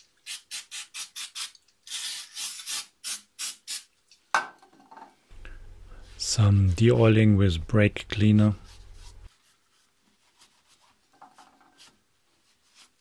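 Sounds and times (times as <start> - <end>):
aerosol can spraying bursts: 0.3 - 3.9.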